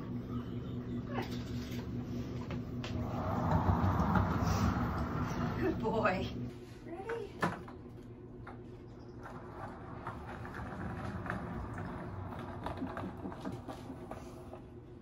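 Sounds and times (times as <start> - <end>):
skateboard wheels rolling on wood: 2.8 - 6.0, 9.2 - 15.0.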